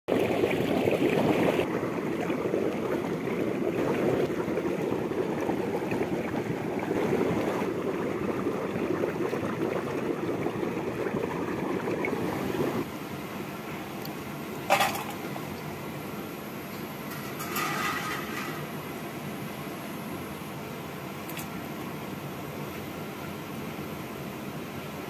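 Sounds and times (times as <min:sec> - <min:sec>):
water rushing: 0:00.0 - 0:12.9.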